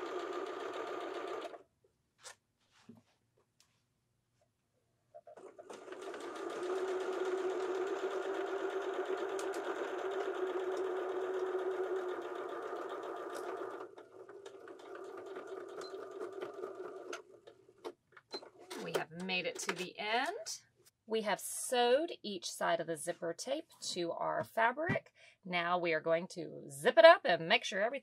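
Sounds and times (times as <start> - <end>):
electric sewing machine stitching: 0.0 - 1.6, 5.3 - 17.4.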